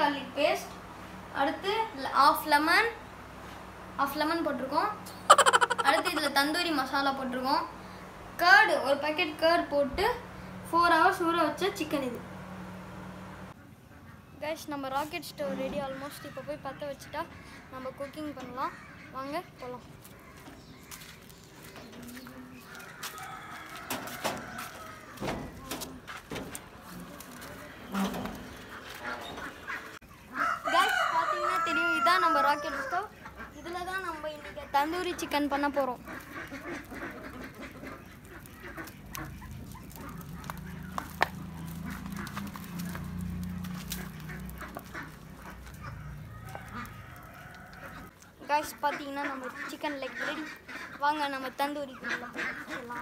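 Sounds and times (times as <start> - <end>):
chickens clucking: 5.0 - 8.4, 15.6 - 53.0
fire low rumble: 6.2 - 13.6, 34.8 - 48.2
rooster crowing: 22.7 - 25.3, 30.4 - 33.1, 45.8 - 48.1
fire crackles: 34.8 - 48.4.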